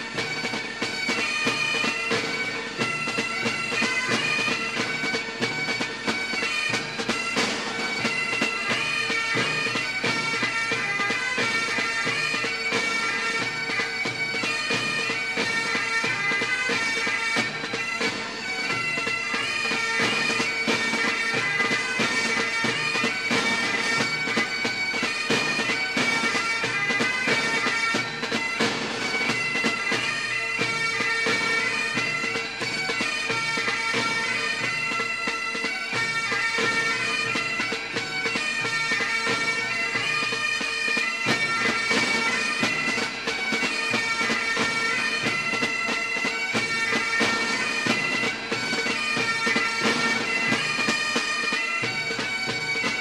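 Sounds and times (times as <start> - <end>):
bagpipe tune with drone: 0.0 - 53.0.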